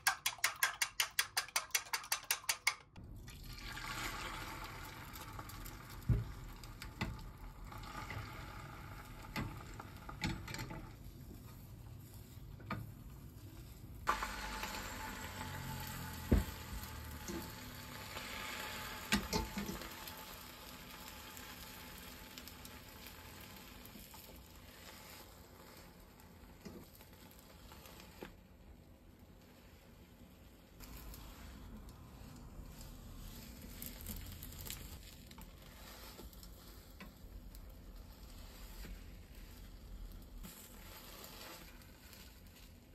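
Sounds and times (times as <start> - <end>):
egg sizzling in a hot pan: 0.0 - 42.9
chopsticks scraping a pan: 30.8 - 42.5.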